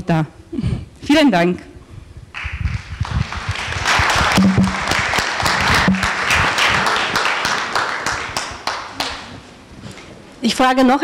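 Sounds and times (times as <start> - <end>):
audience applauding: 2.8 - 9.3.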